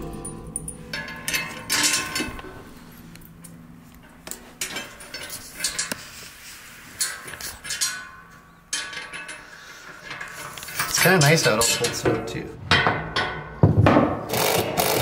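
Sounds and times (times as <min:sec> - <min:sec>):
metal baluster clinking and scraping: 0:00.0 - 0:13.6.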